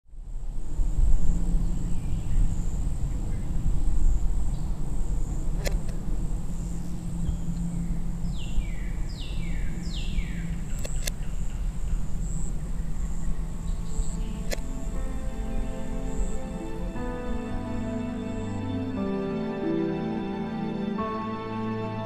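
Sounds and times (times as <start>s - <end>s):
low rumble: 0.1s - 19.5s
high insect buzz: 0.3s - 20.0s
faint clicks: 5.6s - 6.1s, 10.6s - 11.4s, 14.0s - 14.7s
bird calling: 6.5s - 15.3s.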